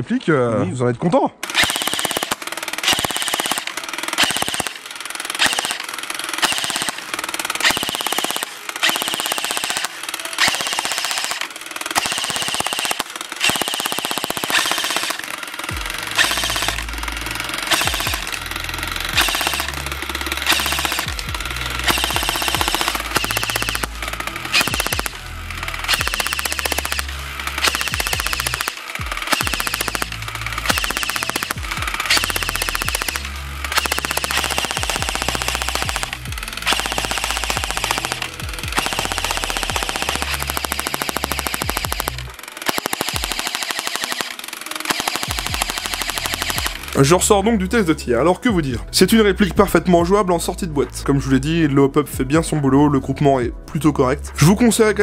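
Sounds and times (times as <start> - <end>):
airsoft machine gun firing: 1.4 - 47.4
heavy bass line: 15.7 - 42.4, 45.3 - 55.0
background music with beat: 45.3 - 55.0.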